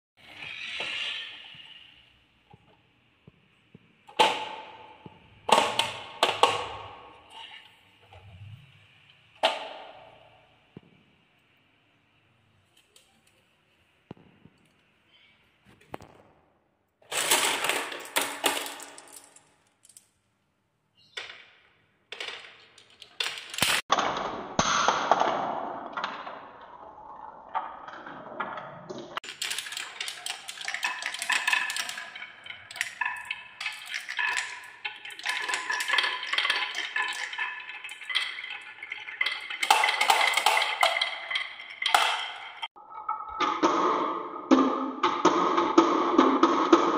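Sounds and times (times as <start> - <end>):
balls clattering down wooden run: 4.1 - 7.6, 17.1 - 20.0, 21.2 - 46.9.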